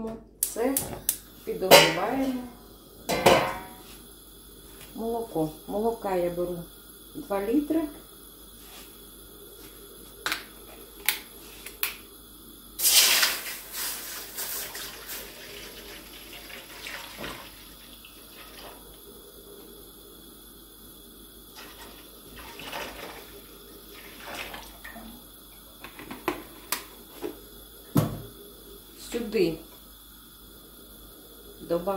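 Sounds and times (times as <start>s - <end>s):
milk splashing into pan: 12.8s - 18.8s
pouring gurgle: 12.8s - 19.8s, 21.4s - 25.8s.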